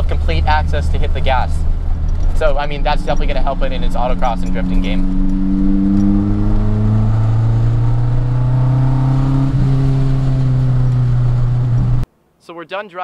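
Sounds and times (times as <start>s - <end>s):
car engine drone from cabin: 0.0s - 12.0s.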